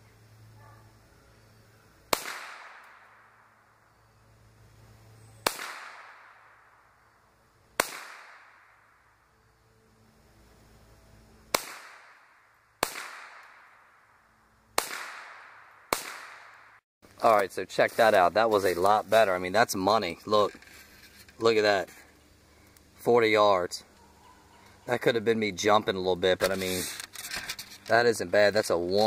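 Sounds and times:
rifle shots with echo: 2.1s - 3.5s, 5.4s - 6.8s, 7.8s - 8.8s, 11.5s - 14.0s, 14.8s - 16.8s.

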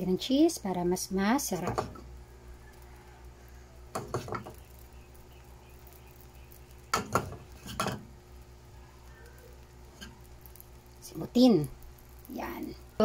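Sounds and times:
steady low hum: 0.0s - 13.0s
knocks against frying pan: 3.9s - 4.5s, 6.9s - 8.0s.

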